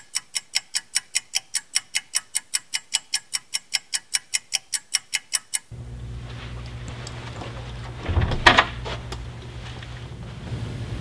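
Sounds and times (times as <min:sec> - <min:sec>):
clock ticking fast: 0:00.0 - 0:05.7.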